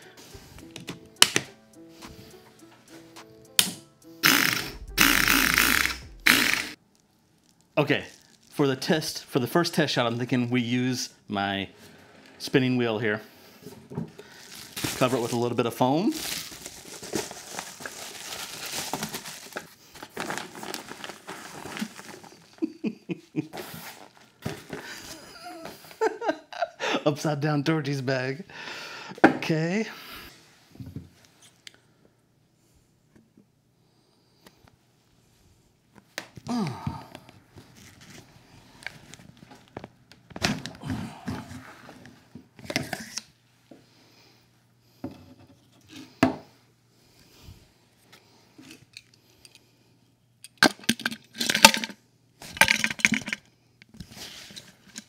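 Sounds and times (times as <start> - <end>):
tone sliding downward: 4.0 - 6.8
plastic crinkling and rustling: 6.8 - 9.2, 14.1 - 22.7.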